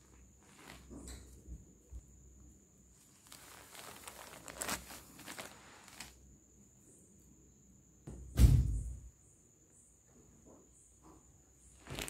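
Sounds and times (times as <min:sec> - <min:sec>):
fabric rustling: 0:00.0 - 0:02.0, 0:02.8 - 0:06.2, 0:11.7 - 0:12.0
loud low thump: 0:08.1 - 0:09.1.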